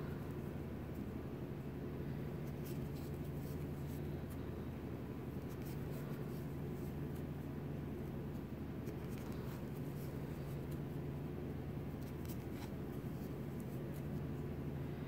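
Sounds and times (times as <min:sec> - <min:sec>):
steady low hum: 0:00.0 - 0:15.0
crochet hook rustling yarn: 0:02.4 - 0:04.4, 0:05.4 - 0:07.4, 0:08.0 - 0:11.0, 0:11.9 - 0:14.5.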